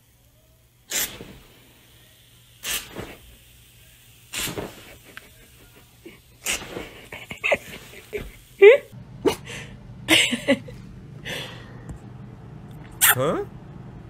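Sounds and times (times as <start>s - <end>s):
aerosol can spraying foam: 0.9s - 8.8s.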